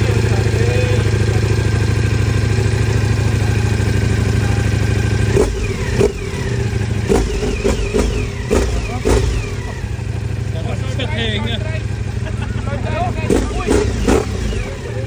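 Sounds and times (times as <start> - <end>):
motorcycle engine idling and revving: 0.0 - 15.0.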